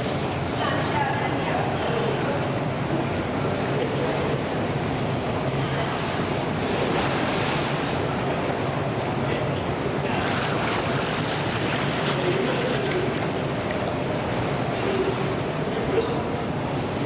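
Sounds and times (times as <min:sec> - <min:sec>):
water noise in swimming pool: 0:00.0 - 0:17.0
water splashing: 0:10.0 - 0:15.8.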